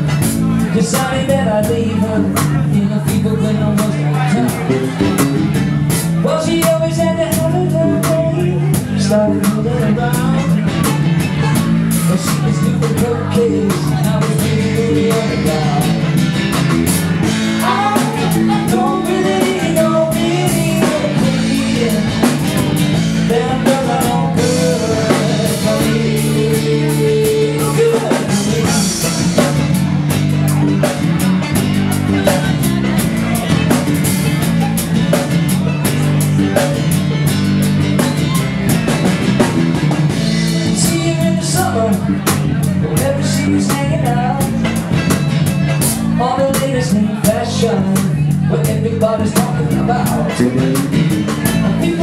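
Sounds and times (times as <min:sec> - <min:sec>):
drum kit beat: 0:00.0 - 0:52.0
strummed guitars: 0:00.0 - 0:52.0
man singing into a microphone: 0:00.1 - 0:16.3, 0:17.2 - 0:29.8, 0:40.1 - 0:45.2, 0:45.8 - 0:52.0.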